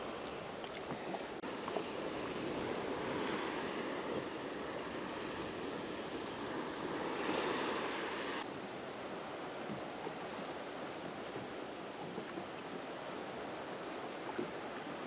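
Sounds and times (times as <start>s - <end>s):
sea waves breaking on rocks: 0.0s - 8.5s.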